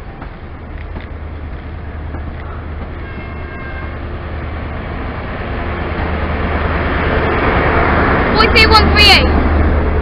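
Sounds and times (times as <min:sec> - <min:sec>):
train engine hum: 0:00.0 - 0:10.0
wheels rumbling on rails: 0:00.0 - 0:10.0
faint high squeal: 0:02.5 - 0:04.0.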